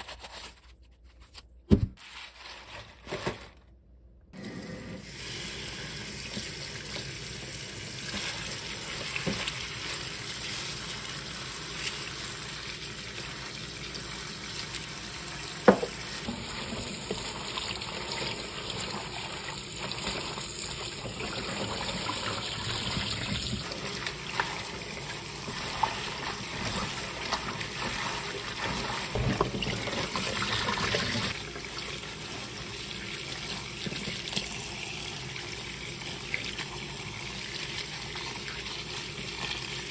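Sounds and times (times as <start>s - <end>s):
tap water running into bowl: 5.0s - 12.4s, 13.2s - 39.9s
hands rinsing leaves splashing: 15.9s - 34.6s.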